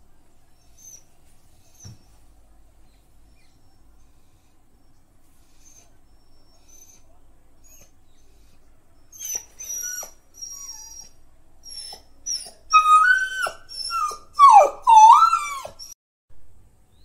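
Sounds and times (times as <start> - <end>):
dog whining: 0.8 - 2.1, 5.5 - 8.0, 9.1 - 16.0.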